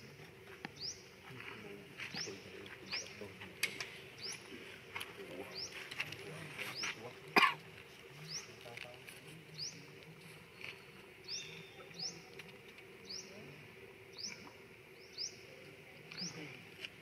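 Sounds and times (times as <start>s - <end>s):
bird chirping: 0.8s - 1.1s, 4.2s - 4.5s, 10.5s - 12.4s, 13.0s - 13.5s, 14.1s - 16.5s.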